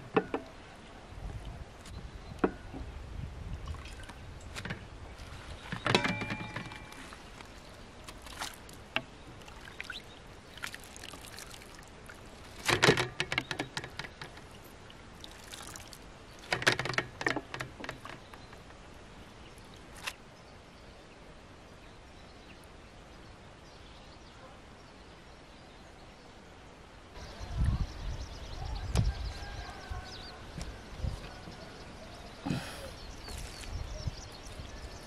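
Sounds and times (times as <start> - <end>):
outdoor background: 0.0 - 35.0
water splashing and dripping: 3.5 - 4.7, 6.5 - 18.8.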